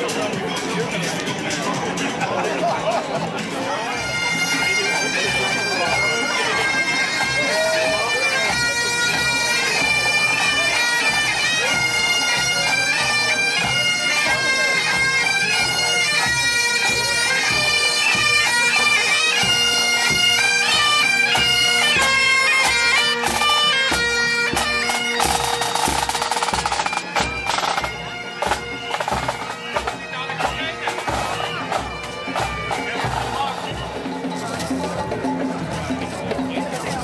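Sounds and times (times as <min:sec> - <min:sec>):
drums beating: 0:00.0 - 0:37.0
bagpipes playing marching tune: 0:03.5 - 0:37.0.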